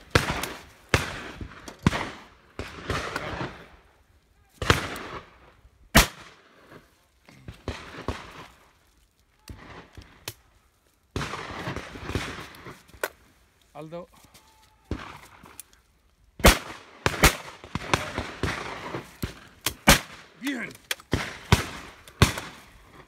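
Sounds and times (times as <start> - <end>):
distant shotgun shots: 0.0 - 3.7, 4.6 - 5.3, 6.0 - 6.4, 11.2 - 12.8, 16.4 - 22.7
loud close shotgun shots: 6.0 - 6.4, 16.4 - 22.7
gunshot echo: 16.4 - 22.7.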